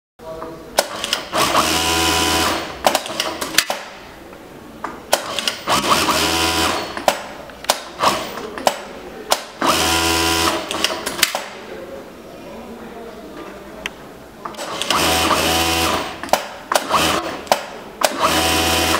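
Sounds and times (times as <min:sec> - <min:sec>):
sharp clicks: 0:00.8 - 0:01.3, 0:02.8 - 0:03.9, 0:04.8 - 0:05.9, 0:06.6 - 0:09.7, 0:10.4 - 0:11.6, 0:16.2 - 0:18.9
sewing machine stitching: 0:00.8 - 0:03.8, 0:05.1 - 0:08.8, 0:09.4 - 0:11.4, 0:14.6 - 0:18.9.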